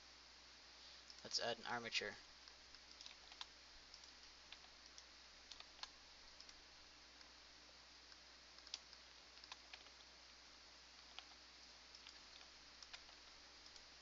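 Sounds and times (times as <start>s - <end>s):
low steady hiss: 0.0s - 14.0s
keyboard and mouse clicks: 2.4s - 6.6s, 8.1s - 10.1s, 11.0s - 13.9s.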